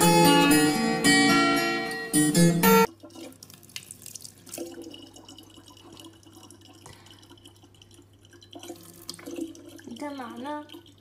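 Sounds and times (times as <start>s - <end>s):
small water drips and splashes: 2.9s - 11.0s
tap water trickling into bottle: 2.9s - 11.0s.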